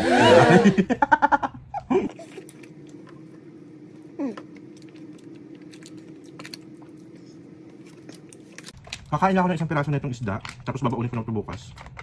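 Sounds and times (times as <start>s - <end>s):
steady low hum: 0.0s - 12.0s
man laughing: 0.1s - 2.5s.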